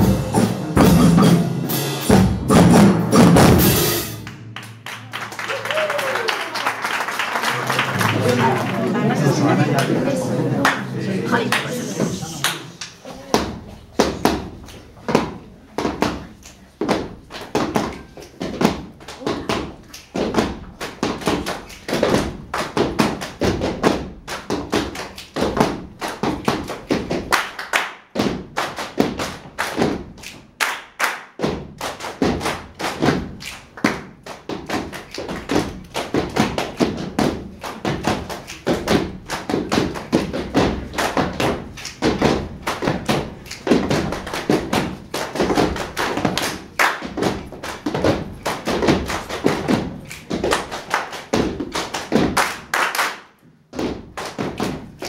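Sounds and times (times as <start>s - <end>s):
body percussion samba rhythm: 0.0s - 6.2s, 16.8s - 30.5s, 31.4s - 52.8s, 53.7s - 55.0s.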